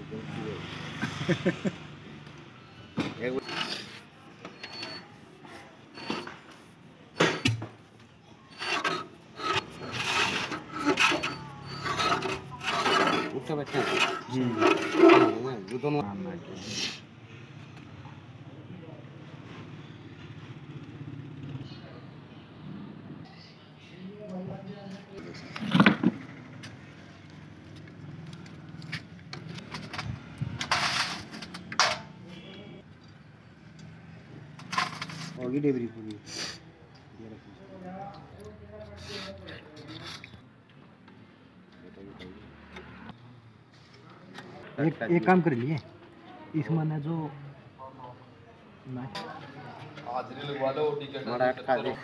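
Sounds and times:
metal scraping on metal: 3.2s - 6.6s, 8.5s - 16.0s, 29.5s - 32.5s, 34.6s - 35.5s.

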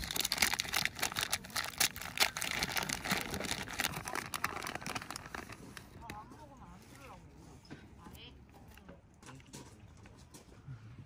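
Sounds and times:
sharp clicks and crackles: 0.0s - 6.2s
material crinkling and rustling: 0.0s - 7.7s.

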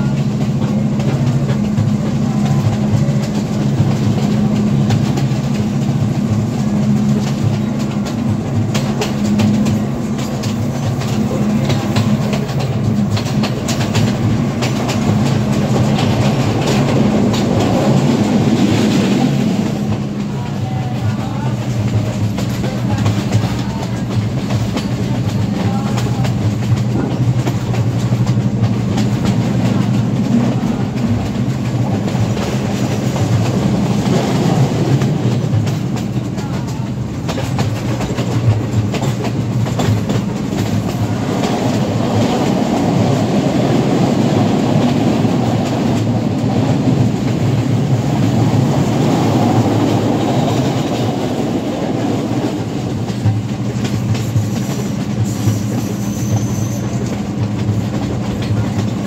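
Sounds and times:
diesel locomotive drone: 0.0s - 59.0s
train wheels clattering over rail joints: 0.0s - 59.0s.

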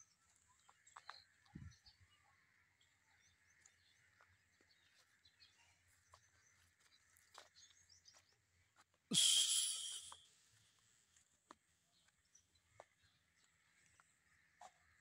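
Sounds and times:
small bird chirps: 9.2s - 10.3s.

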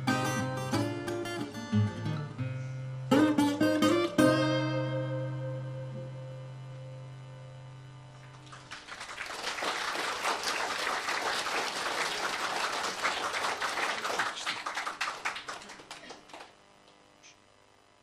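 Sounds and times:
guitar chord ringing: 0.0s - 8.3s
audience applauding: 8.2s - 16.6s.

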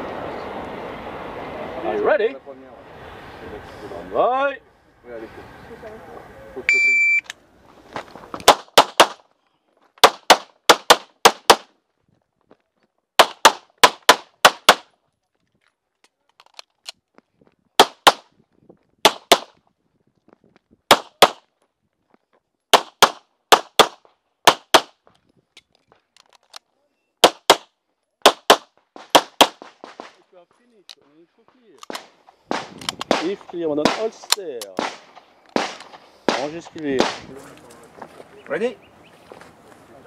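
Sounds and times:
pistol shots in rapid strings: 31.9s - 34.2s.

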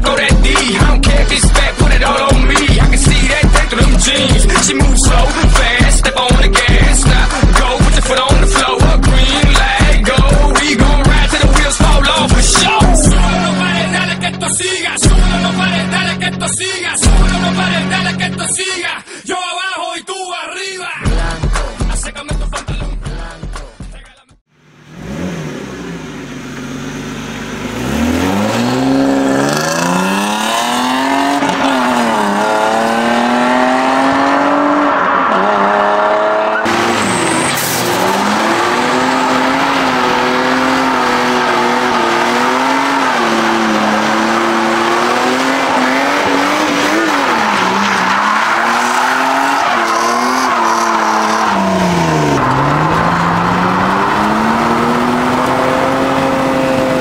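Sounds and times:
car engine revving hard: 24.6s - 57.0s
tyres squealing: 34.5s - 56.4s.

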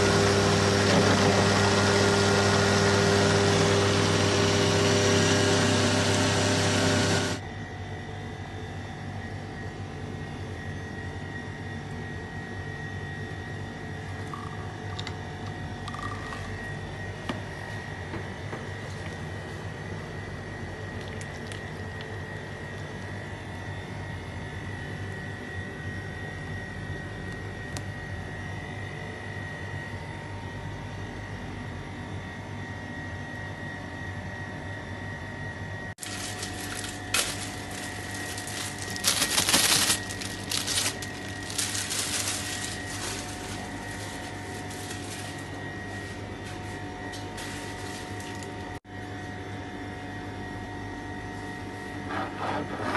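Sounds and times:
mechanical hum: 0.0s - 52.9s
rustling and clatter: 36.0s - 48.6s.

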